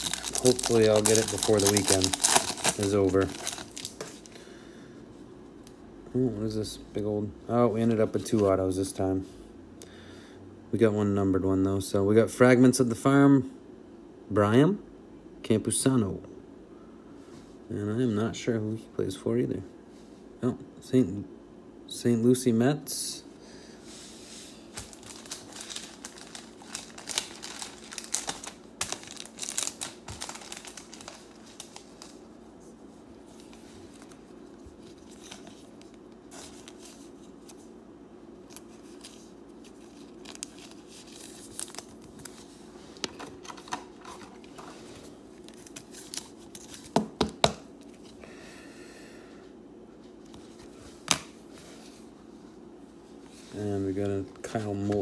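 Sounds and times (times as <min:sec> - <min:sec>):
plastic card sleeve crinkling: 0:00.0 - 0:04.4, 0:24.7 - 0:32.3, 0:38.4 - 0:47.0.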